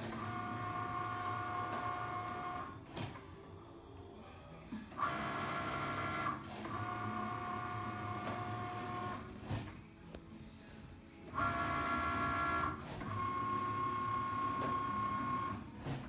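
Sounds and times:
cutting machine motor whining: 0.0 - 2.9, 4.9 - 9.3, 11.3 - 16.0.

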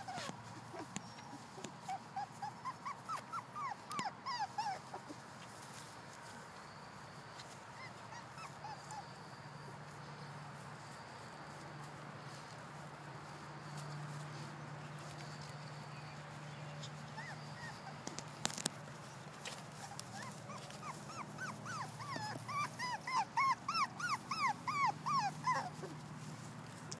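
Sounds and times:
puppy whimpering and yelping: 0.0 - 5.9, 7.3 - 10.3, 15.0 - 26.5.

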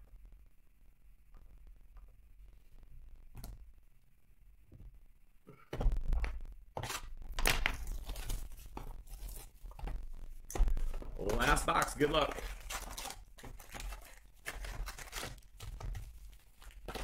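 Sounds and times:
plastic wrap tearing and crinkling: 6.8 - 17.0.

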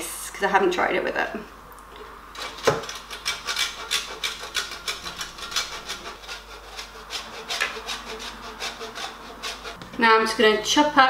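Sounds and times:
cheese grating on metal grater: 2.4 - 9.8.

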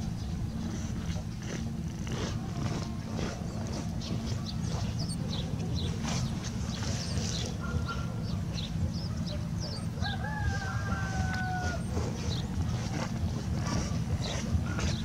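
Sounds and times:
small birds chirping: 0.0 - 15.0
steady low rumble: 0.0 - 15.0
rooster crowing: 9.7 - 12.4.

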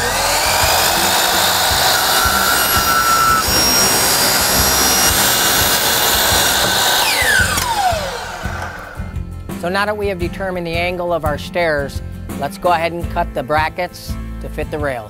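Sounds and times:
miter saw cutting plastic rail: 0.0 - 9.1.

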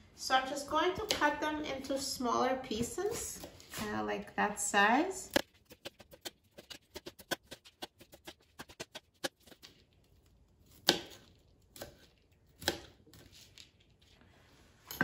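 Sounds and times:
knife chopping on plastic board: 5.3 - 9.7, 10.7 - 13.0.

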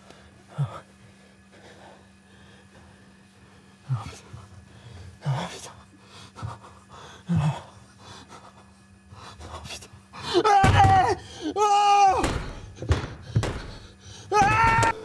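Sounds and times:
man moaning: 6.4 - 7.8, 10.2 - 12.7.

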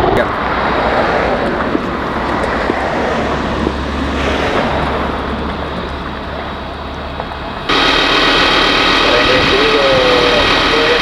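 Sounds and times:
engine drone with steady tones: 0.0 - 11.0
engine rumble: 0.0 - 11.0
low hum: 0.3 - 11.0
noisy hiss: 7.6 - 11.0.

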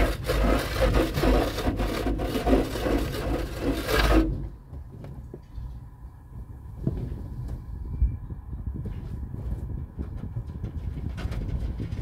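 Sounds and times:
car wash brushes scrubbing: 0.0 - 4.6.

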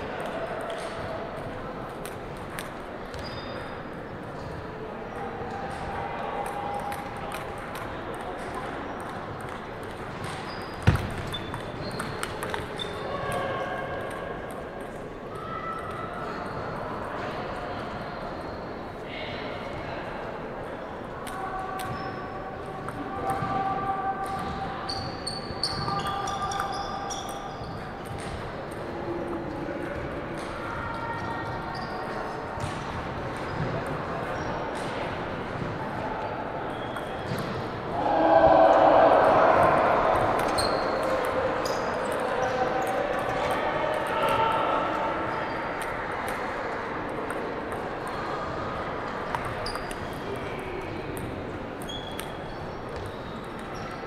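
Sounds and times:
sports hall background noise: 0.0 - 54.0
table tennis balls clicking: 6.4 - 12.8.

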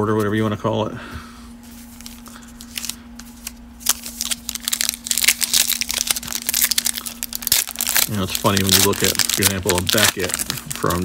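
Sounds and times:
faint steady hum: 0.0 - 11.0
foil wrapper crinkling and tearing: 1.9 - 11.0.

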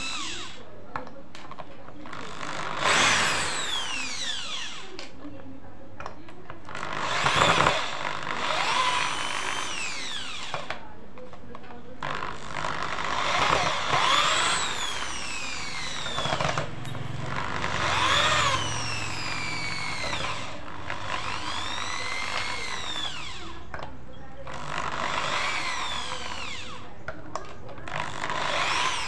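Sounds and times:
electric drill drilling into wood: 0.0 - 0.6, 2.0 - 5.1, 6.7 - 10.8, 12.0 - 23.7, 24.5 - 26.9, 27.9 - 29.0.

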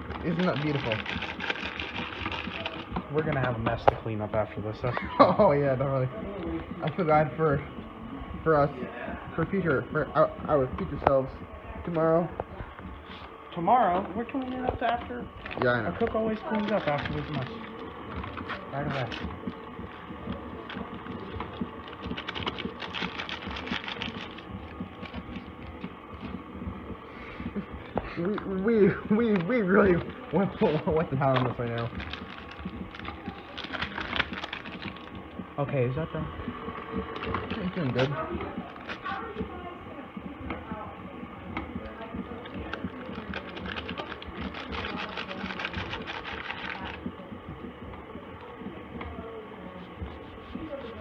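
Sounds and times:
paper bag crinkling: 0.0 - 3.4, 15.4 - 19.4, 20.7 - 25.4, 29.2 - 35.1, 42.7 - 47.1
powder pouring into plastic bowl: 0.0 - 6.1, 15.4 - 36.1, 41.6 - 47.2.

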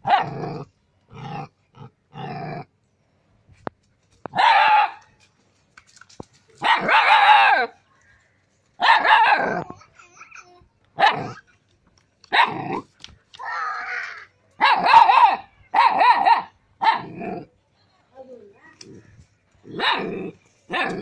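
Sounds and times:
young dog barking: 0.0 - 0.4, 4.3 - 5.0, 6.6 - 7.8, 8.8 - 9.6, 11.0 - 11.4, 12.3 - 12.8, 14.6 - 17.2, 19.7 - 21.0.

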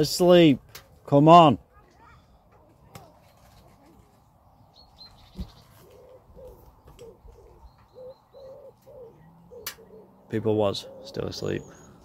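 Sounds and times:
faint high bird chirps: 4.6 - 10.2, 10.8 - 12.0
pigeon cooing: 5.4 - 12.0.

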